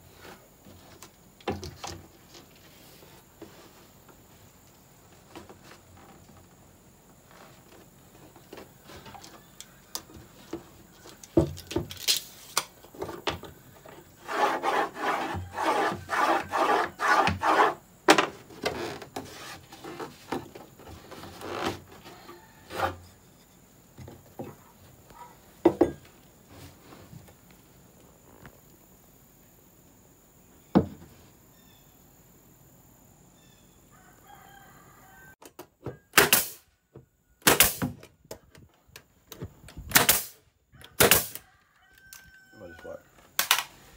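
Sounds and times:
rubbing strokes on wood: 14.1 - 17.8, 18.7 - 23.6
sharp click: 43.4 - 43.7.

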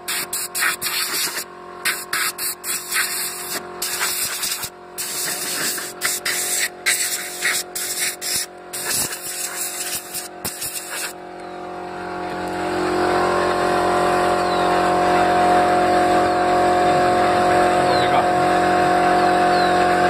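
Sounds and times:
compressed air blow gun hissing: 0.0 - 11.2
steady hum: 0.0 - 20.0.

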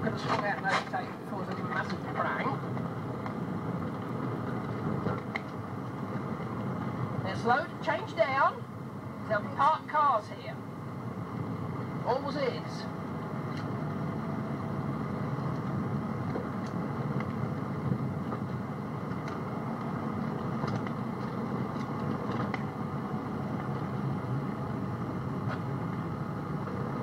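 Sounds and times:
car engine and tyres droning: 0.0 - 9.7, 10.6 - 27.0.

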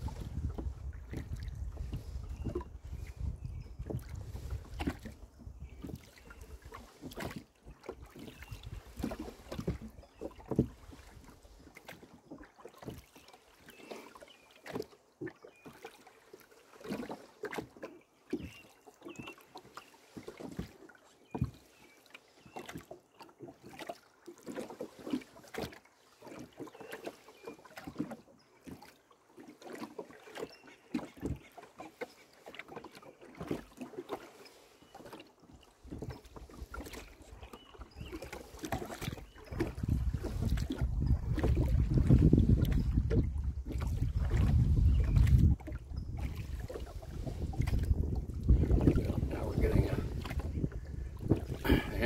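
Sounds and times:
oar blades splashing: 3.9 - 5.2, 5.8 - 52.0
oars knocking in oarlocks: 30.9 - 34.4, 47.4 - 52.0.

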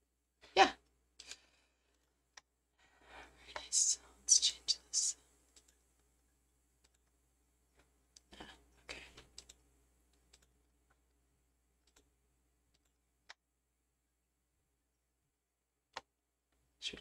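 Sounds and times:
faint computer mouse clicks: 5.5 - 5.8, 9.2 - 10.5.

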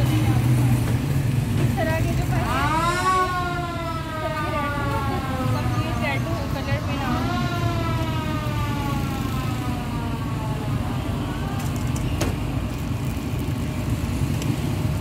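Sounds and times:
low rumble of traffic: 0.0 - 15.0
siren winding down: 2.4 - 11.7.

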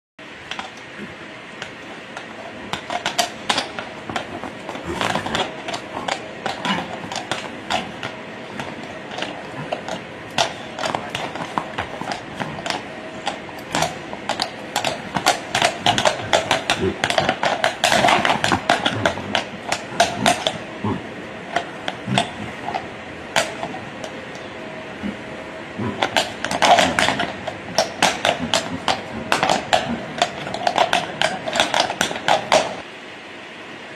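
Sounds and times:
hooves clattering on cobblestones: 0.5 - 25.2, 25.8 - 32.8.

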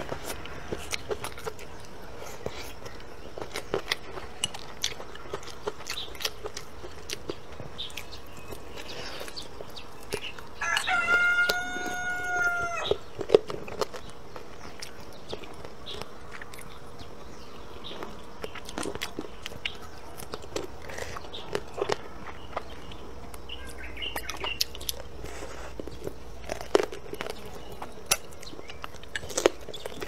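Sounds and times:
crunching and gnawing: 0.0 - 30.0
rooster crowing: 10.6 - 13.0.

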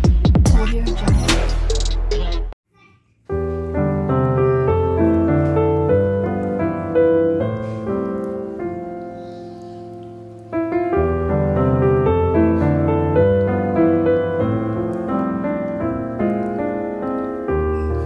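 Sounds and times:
piano music: 3.3 - 18.0.

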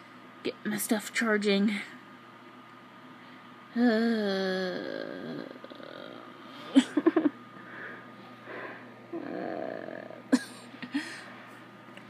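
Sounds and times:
breathing close to microphone: 7.6 - 8.9.

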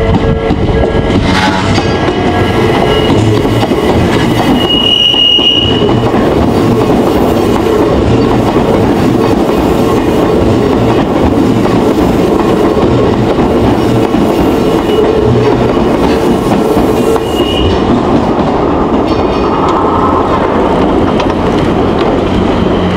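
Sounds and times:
electric train rumbling past: 0.0 - 22.9
high wheel squeal: 2.2 - 6.0, 22.3 - 22.9.

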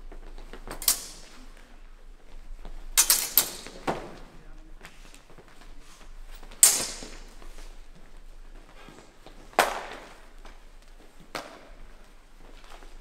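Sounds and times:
steel swords clashing: 0.8 - 1.5, 3.0 - 3.9, 6.6 - 7.4.

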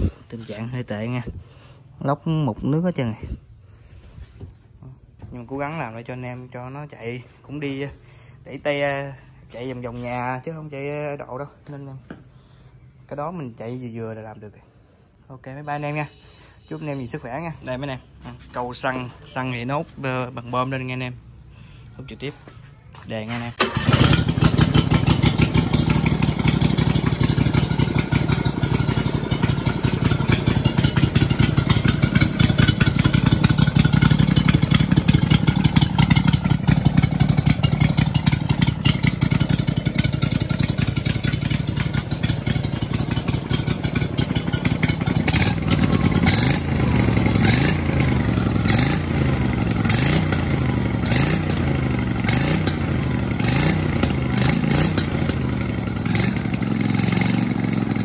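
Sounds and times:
engine running: 23.6 - 58.0.

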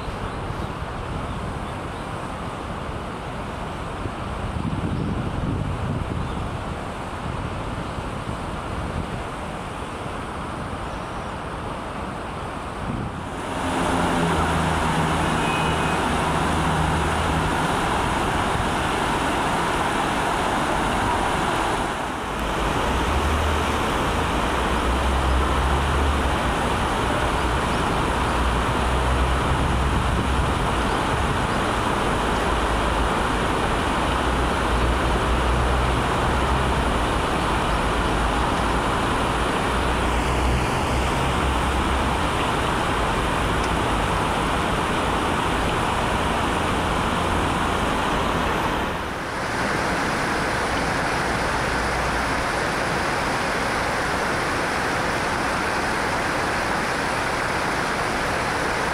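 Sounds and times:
road traffic hiss: 0.0 - 58.9.

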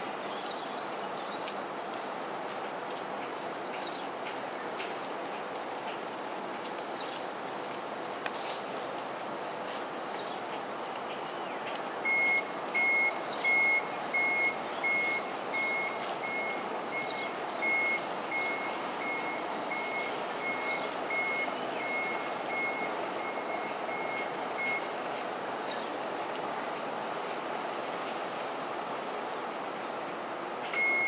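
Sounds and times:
vehicle reversing alarm beeping: 12.0 - 25.0, 30.7 - 31.0.

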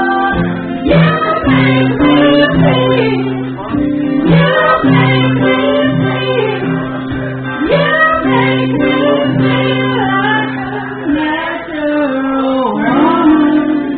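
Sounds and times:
acoustic guitar chords: 0.0 - 13.9
woman singing: 0.0 - 13.9.

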